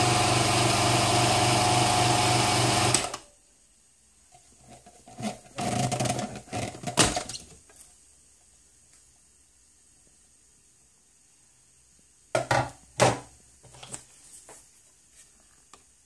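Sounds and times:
food processor motor running: 0.0s - 3.1s.

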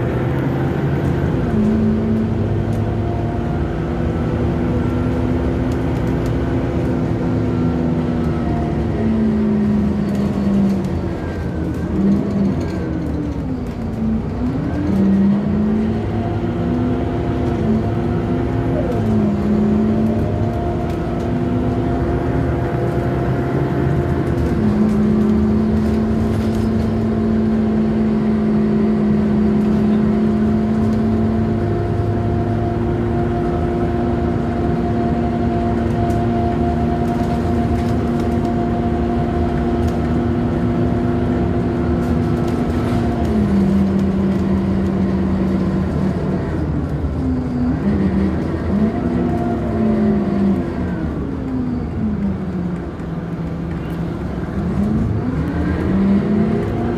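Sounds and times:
bus engine and gearbox whine: 0.0s - 56.9s
road noise: 0.0s - 56.9s.

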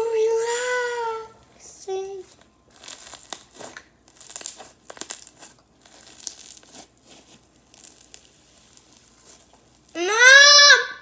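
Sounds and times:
slime crackling and popping: 2.3s - 10.0s.

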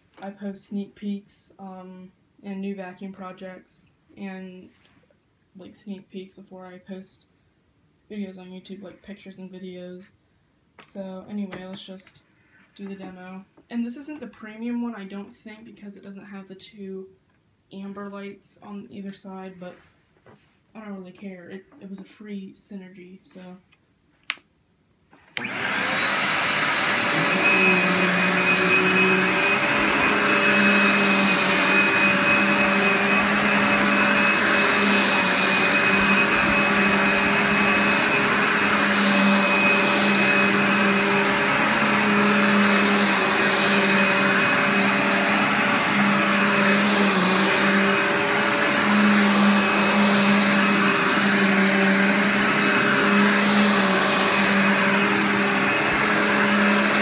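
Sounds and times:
upright vacuum whining: 25.3s - 57.0s.

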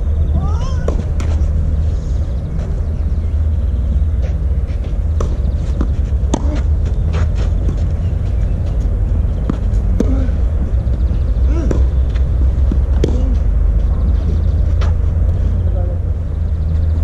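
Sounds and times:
steady low rumble: 0.0s - 17.0s
tennis balls struck by rackets: 0.8s - 1.5s, 4.2s - 8.0s, 8.7s - 13.6s.

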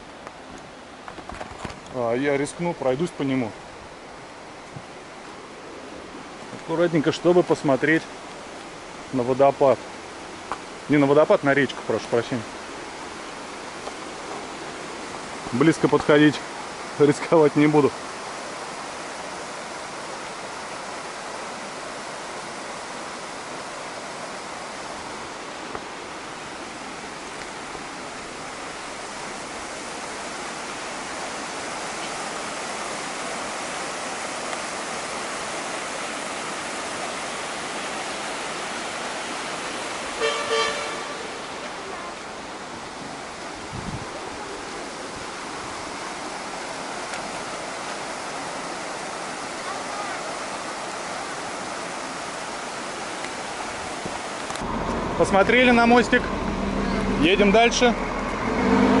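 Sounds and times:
river rushing over rocks: 0.0s - 59.0s
short horn toot: 40.2s - 41.5s.

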